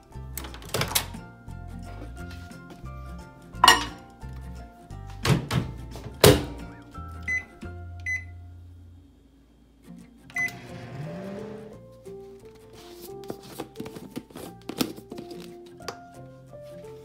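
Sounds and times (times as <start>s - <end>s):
short keypad beeps: 7.3s - 8.3s, 10.4s - 10.6s
microwave oven whirring: 10.3s - 11.7s.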